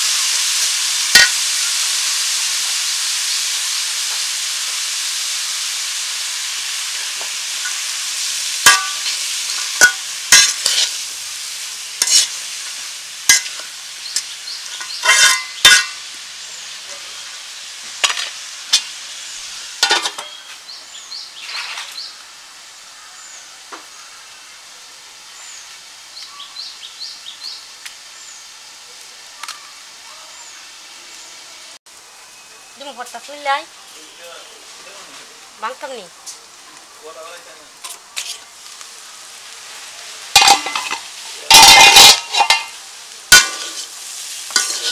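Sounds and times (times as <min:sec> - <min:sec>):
vegetables sizzling in oil: 0:00.0 - 0:44.9
metal spatula scraping pan: 0:08.6 - 0:11.0, 0:12.0 - 0:12.4, 0:13.3 - 0:16.0, 0:38.2 - 0:38.5, 0:40.4 - 0:44.9.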